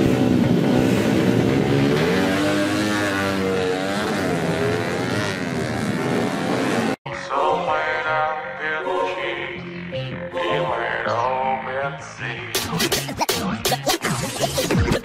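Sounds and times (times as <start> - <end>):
motorcycles revving at full throttle: 0.0 - 7.0
music: 7.1 - 15.0.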